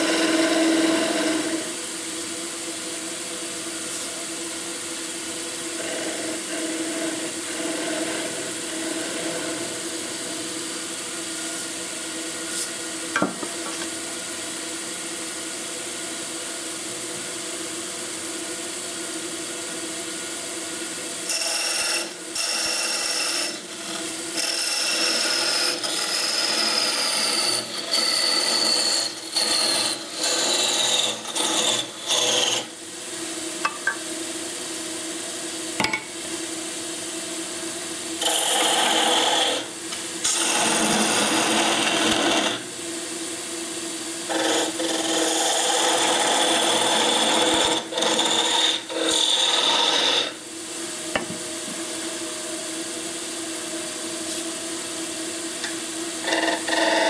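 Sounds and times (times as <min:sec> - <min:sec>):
lathe motor hum: 0:00.0 - 0:01.8, 0:05.7 - 0:10.4, 0:21.3 - 0:32.7, 0:38.2 - 0:42.7, 0:44.3 - 0:50.4, 0:55.6 - 0:57.0
lathe tool scraping wood: 0:00.0 - 0:01.8, 0:05.7 - 0:10.3, 0:21.2 - 0:32.7, 0:38.2 - 0:42.7, 0:44.3 - 0:50.4, 0:56.2 - 0:57.0.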